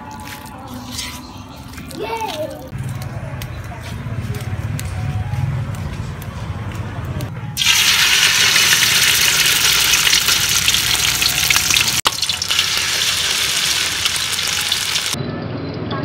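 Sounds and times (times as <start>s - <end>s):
meat sizzling loudly in oil: 7.6s - 15.2s.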